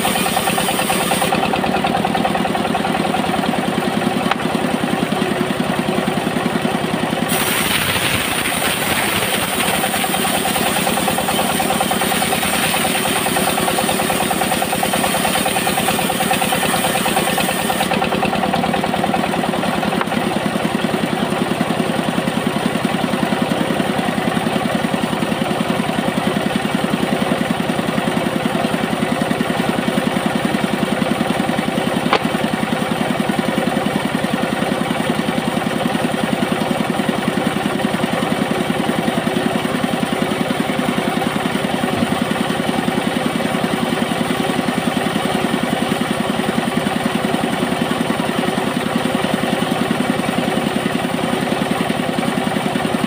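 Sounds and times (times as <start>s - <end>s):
saw blade cutting wood: 0.0s - 4.7s, 7.2s - 20.4s, 32.1s - 32.7s
bandsaw engine running: 0.0s - 53.0s.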